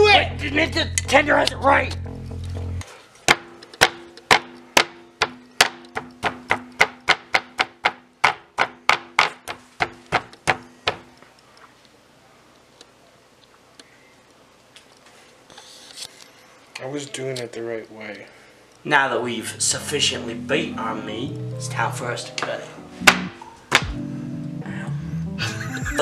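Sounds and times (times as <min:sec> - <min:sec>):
mallet pounding meat: 0:03.3 - 0:11.1, 0:23.0 - 0:24.0.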